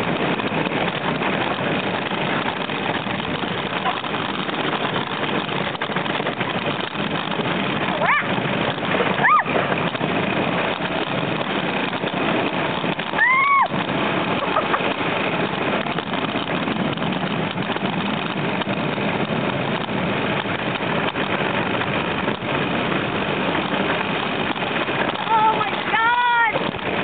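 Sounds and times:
coaster car rumbling on rails: 0.0s - 27.0s
person whooping: 9.2s - 9.6s, 13.2s - 13.8s.

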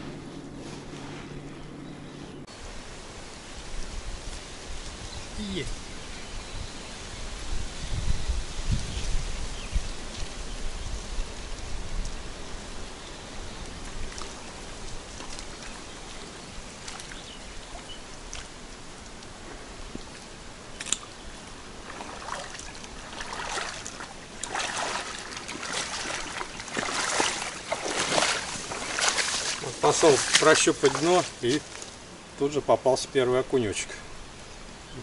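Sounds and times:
faint hiss: 2.5s - 23.8s
footsteps sloshing through water: 13.6s - 32.1s.

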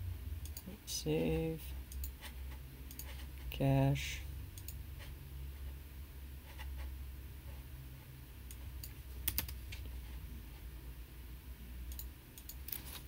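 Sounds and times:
low steady hum: 0.0s - 13.0s
keyboard keystrokes: 8.8s - 9.6s.

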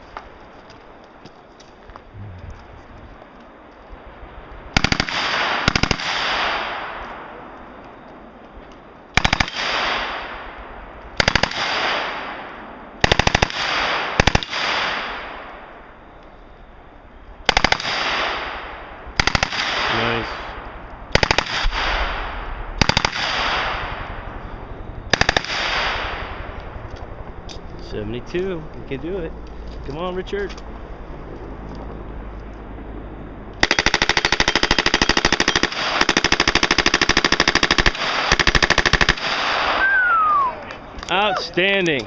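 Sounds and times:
gunshot echo: 21.2s - 24.3s, 25.1s - 26.6s
submachine gun bursts: 33.6s - 39.4s.

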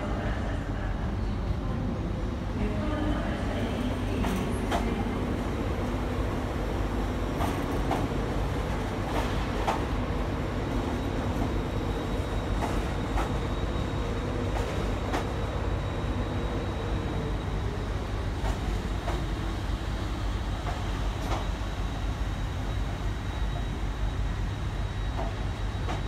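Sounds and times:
passenger train rumbling past: 0.0s - 26.0s.

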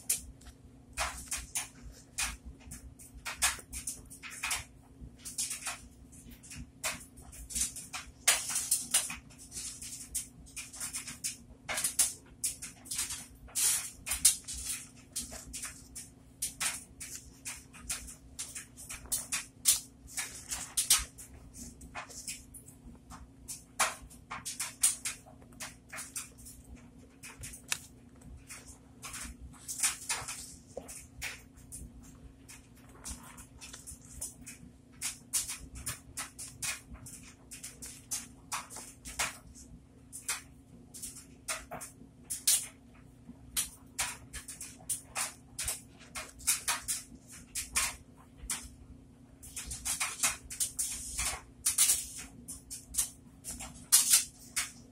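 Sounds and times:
faint steady hum: 0.0s - 54.9s.

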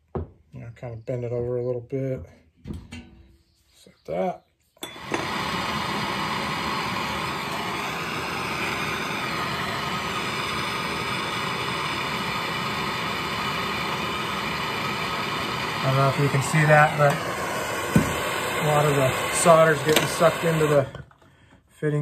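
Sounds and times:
gas torch hissing: 4.9s - 21.0s.

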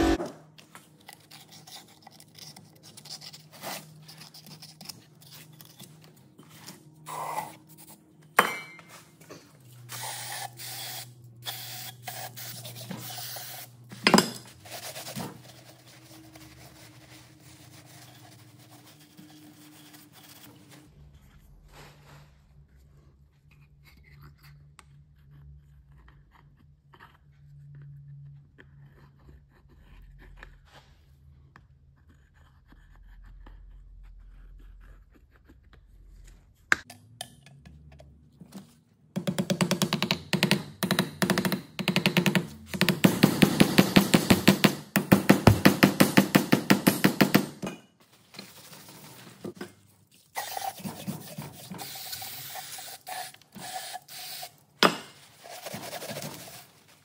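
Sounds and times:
spray paint hissing: 9.9s - 13.7s, 50.4s - 54.6s.

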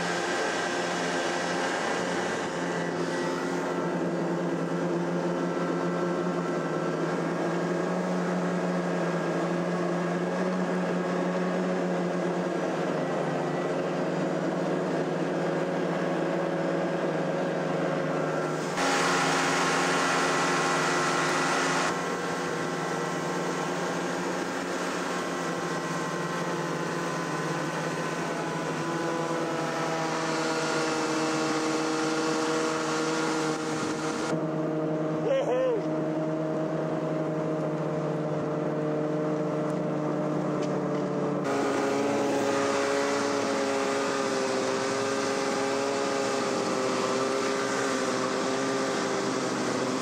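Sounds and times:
snowmobile engine running: 0.0s - 50.0s
rush of noise: 17.5s - 34.4s.

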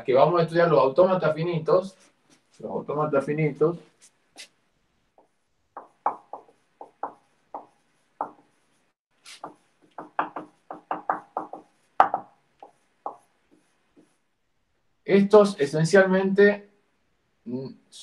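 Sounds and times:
marker squeaking on whiteboard: 5.2s - 14.2s.

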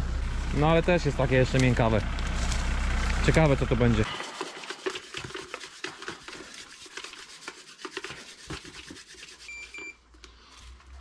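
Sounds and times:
short electronic beep: 9.5s - 10.0s.

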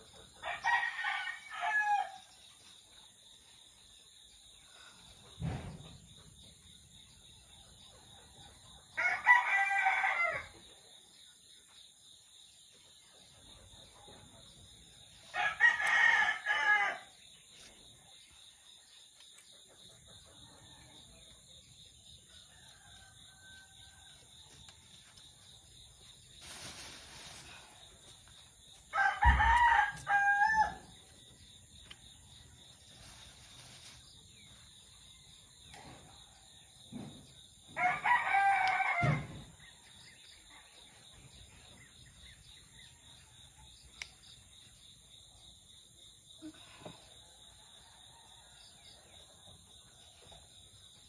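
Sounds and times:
insects trilling: 0.0s - 51.0s
rooster crowing: 9.0s - 10.5s, 28.9s - 30.9s, 37.8s - 39.4s.

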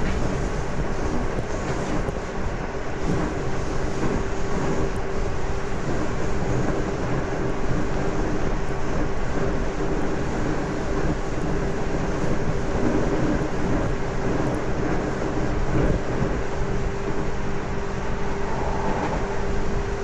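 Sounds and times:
train wheels rumbling on rail: 0.0s - 20.0s
traction motor hum: 17.2s - 20.0s.

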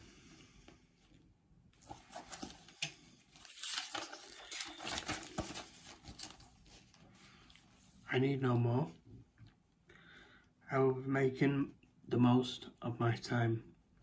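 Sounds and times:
handling rustling: 1.8s - 7.0s.

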